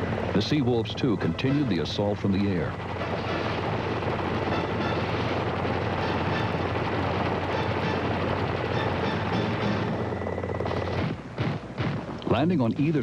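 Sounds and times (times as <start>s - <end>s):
steady low hum: 0.0s - 13.0s
rapid machine-gun fire: 1.6s - 12.2s.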